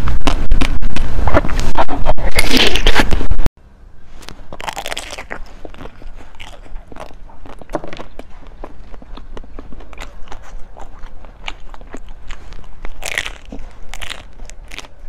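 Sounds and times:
crunchy food chewing: 0:04.1 - 0:15.0.

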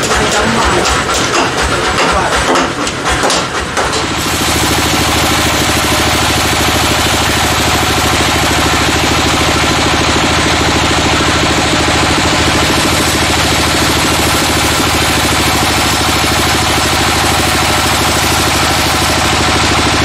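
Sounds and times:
band sawmill cutting log: 0:00.0 - 0:20.0.

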